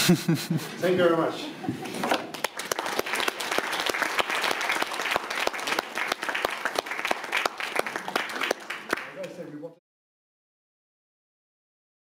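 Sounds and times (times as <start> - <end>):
audience applauding: 2.0 - 9.6.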